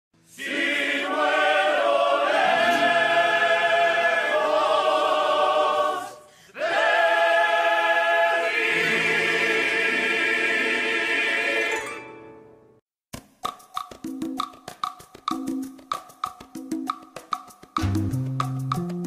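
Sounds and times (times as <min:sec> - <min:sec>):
choir singing long held chords: 0:00.3 - 0:12.1.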